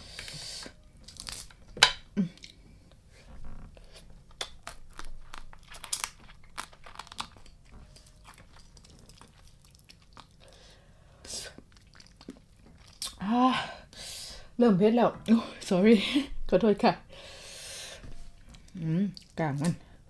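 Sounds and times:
crunching and chewing: 0:03.8 - 0:10.8, 0:11.5 - 0:13.2
crab shell cracking: 0:04.3 - 0:10.4.

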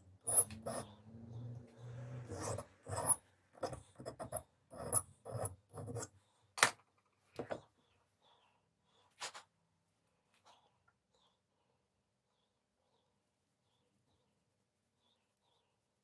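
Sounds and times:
hand file strokes: 0:00.0 - 0:06.2.

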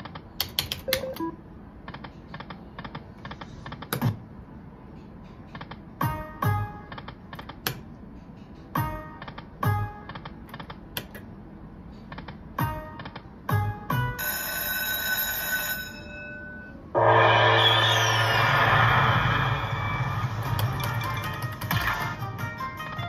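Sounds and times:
slot machine clicks: 0:00.4 - 0:01.4, 0:20.4 - 0:22.3
ringing jingle: 0:14.2 - 0:17.0.

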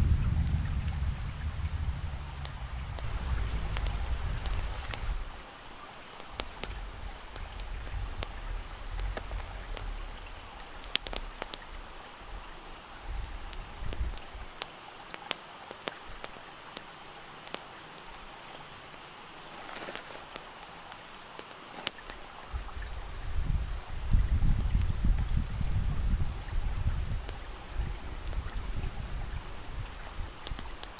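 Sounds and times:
wind rumble on microphone: 0:00.0 - 0:05.6, 0:06.3 - 0:14.6, 0:22.1 - 0:30.9
steady outdoor hiss: 0:00.0 - 0:30.9
small clicks and ticks: 0:02.4 - 0:05.2, 0:06.1 - 0:12.6, 0:13.2 - 0:22.8, 0:27.1 - 0:30.9.

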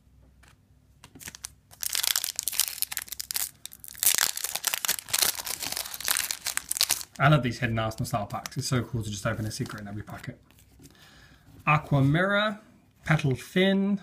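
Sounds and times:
foil wrapper tearing and crinkling: 0:01.2 - 0:07.2.

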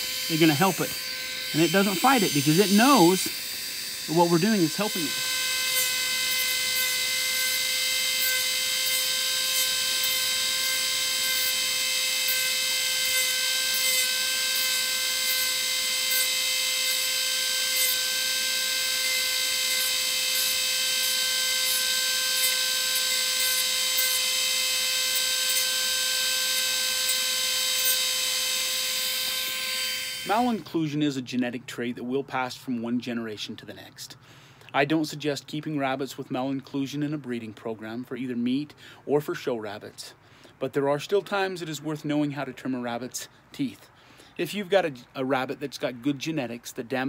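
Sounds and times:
rotary tool whining: 0:00.0 - 0:30.7
cutting disc ticking on tooth: 0:00.1 - 0:28.1.

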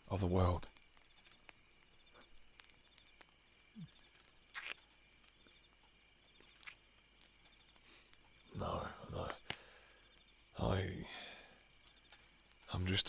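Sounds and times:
soft clicks: 0:00.6 - 0:08.6, 0:11.6 - 0:12.8.

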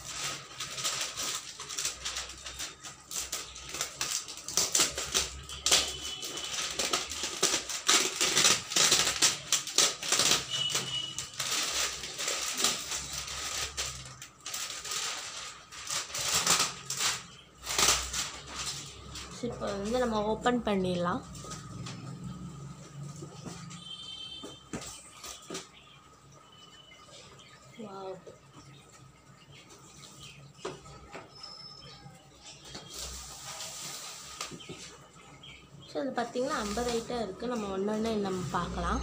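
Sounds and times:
plastic shrink-wrap crinkling: 0:00.0 - 0:23.2, 0:23.8 - 0:26.2, 0:27.4 - 0:39.0.

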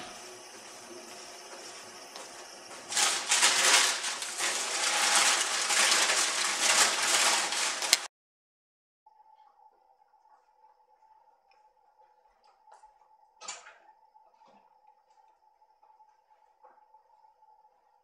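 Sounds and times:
rustling and crumpling material: 0:00.7 - 0:08.1.

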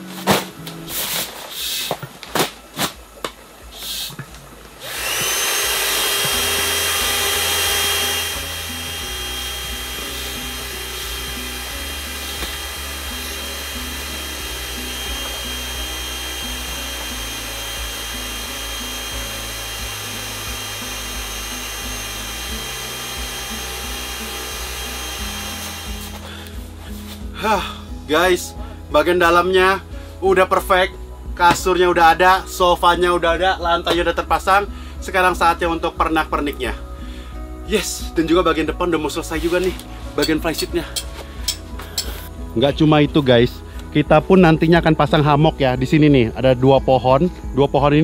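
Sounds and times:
background music: 0:00.0 - 0:01.5, 0:02.5 - 0:48.0
electric air pump whine: 0:00.0 - 0:28.2, 0:38.0 - 0:42.9.

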